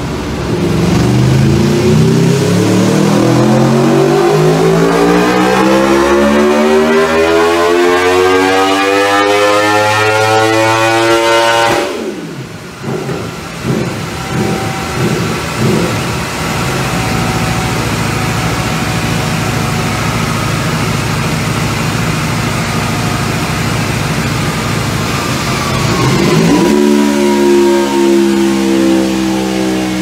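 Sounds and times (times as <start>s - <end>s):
motorcycle engine revving: 0.4s - 30.0s.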